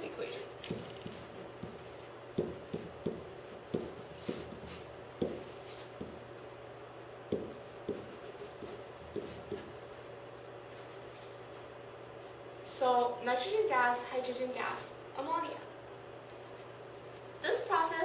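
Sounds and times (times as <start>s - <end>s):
faint room hum: 0.0s - 18.0s
pen tapping on whiteboard: 0.6s - 4.6s, 5.2s - 6.2s, 7.3s - 9.7s.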